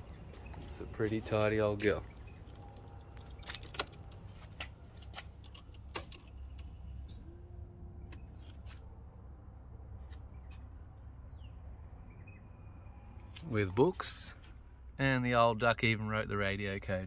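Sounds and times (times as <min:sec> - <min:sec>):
low steady rumble: 0:00.0 - 0:17.0
car keys jingling in ignition: 0:02.1 - 0:06.8.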